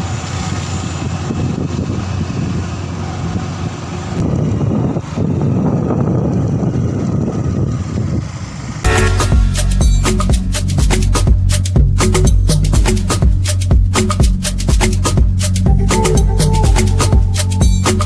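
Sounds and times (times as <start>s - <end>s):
wind rushing over microphone: 0.0s - 8.9s
motorcycle engine running: 0.0s - 18.0s.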